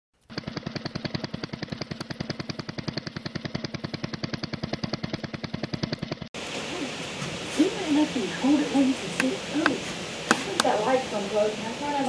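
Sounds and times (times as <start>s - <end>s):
small engine idling: 0.2s - 6.3s.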